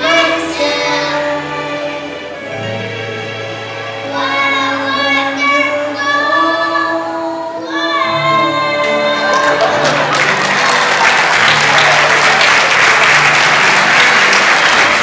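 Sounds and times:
children singing: 0.0 - 10.5
musical accompaniment: 0.0 - 15.0
applause: 9.1 - 15.0.

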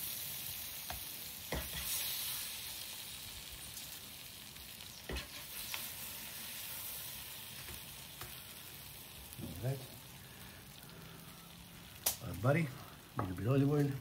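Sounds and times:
vegetables sizzling in a pan: 0.0 - 14.0.

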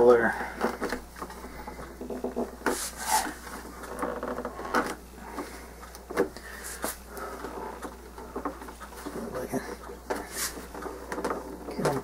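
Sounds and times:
short swishes and knocks: 0.8 - 3.8
paper towel rubbing on model: 2.6 - 3.5, 10.2 - 11.0.

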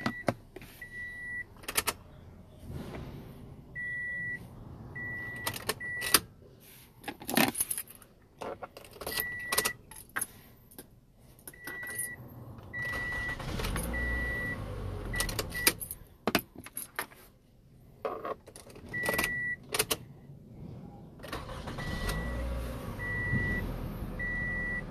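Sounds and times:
keys clicking and jangling: 7.0 - 10.8, 15.3 - 17.2
car electronic chime beeping: 12.8 - 15.8, 21.4 - 23.6, 24.2 - 24.9.

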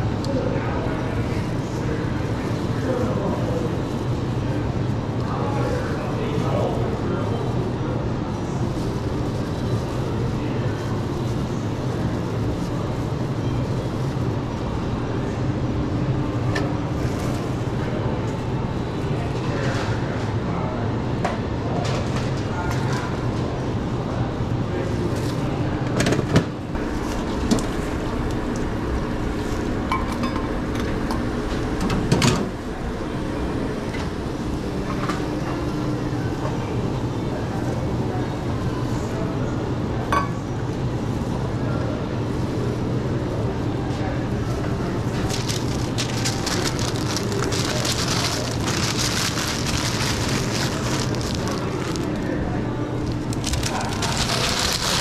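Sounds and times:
steady hum: 26.6 - 37.5
paper wrap crinkling: 45.1 - 52.4, 53.0 - 55.0.

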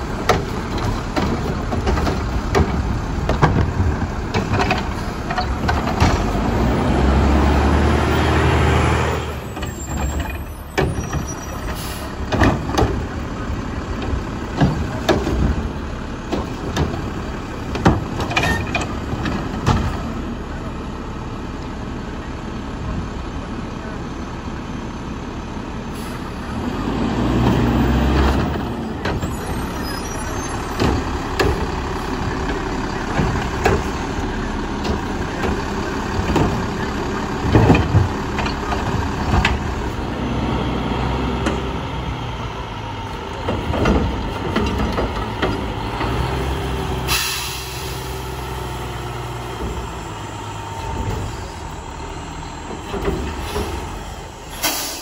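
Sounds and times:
clanks and bangs of carts: 0.0 - 8.4, 9.2 - 20.2, 27.2 - 40.1, 43.0 - 55.0
diesel engine revving: 0.0 - 55.0
air-brake hiss: 47.0 - 48.3, 54.5 - 55.0.

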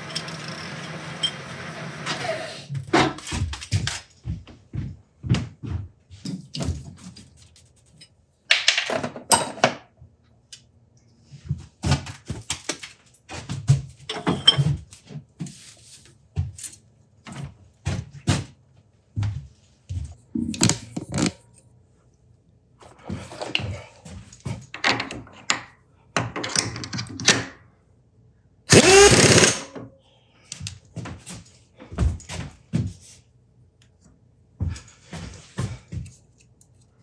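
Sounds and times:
metal tools knocking and clunking: 8.7 - 9.9, 14.1 - 14.8.

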